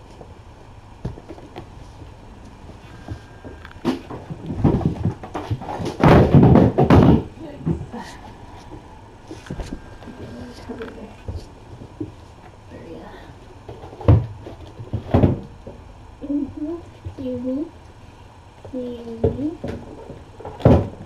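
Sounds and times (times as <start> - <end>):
footsteps near microphone: 0.0 - 12.6.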